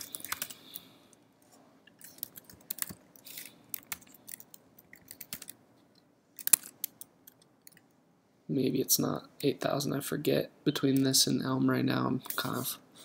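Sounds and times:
computer keyboard typing: 0.0s - 0.6s, 2.0s - 5.6s.

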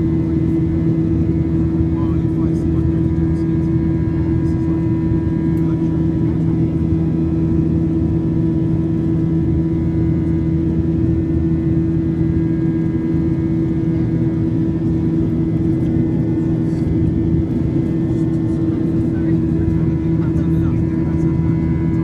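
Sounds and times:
jet engine drone in cabin: 0.0s - 22.0s.

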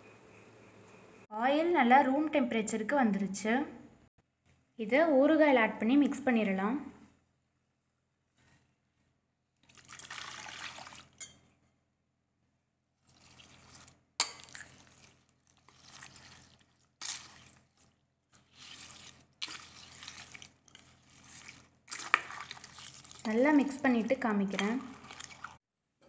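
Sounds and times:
oil pouring: 9.6s - 11.2s, 13.0s - 17.8s, 18.4s - 23.3s, 24.8s - 25.6s
spoon stirring wet pickle: 13.0s - 25.6s.

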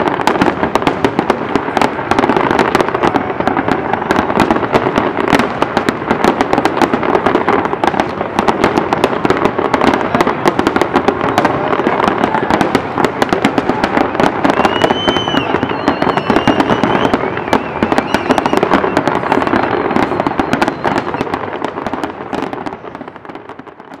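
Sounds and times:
fireworks bangs and crackles: 0.0s - 24.0s
wavering high whistle: 14.4s - 19.0s.

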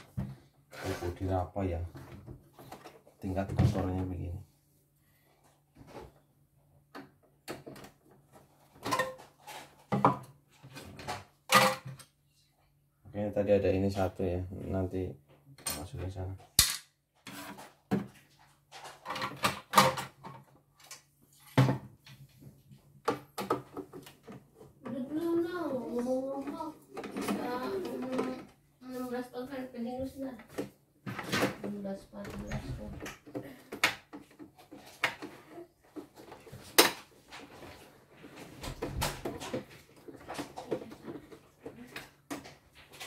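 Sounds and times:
plastic panels knocking and scraping: 30.4s - 43.0s.

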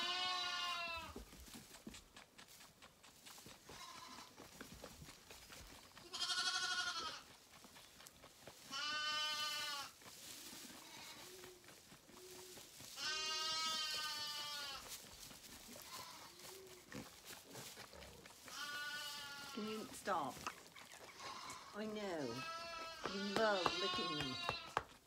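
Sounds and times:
sheep bleating: 0.0s - 1.2s, 6.0s - 7.2s, 8.7s - 10.0s, 13.0s - 14.8s, 15.8s - 16.5s, 18.5s - 19.8s, 21.1s - 24.8s.

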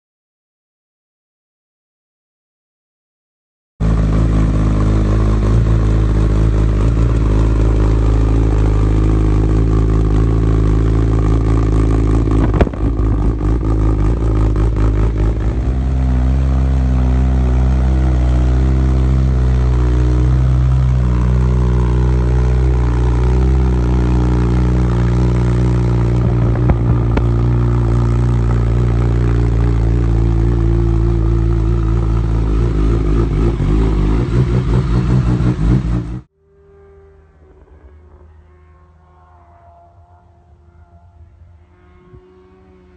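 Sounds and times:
motorcycle engine idling: 4.0s - 36.1s.

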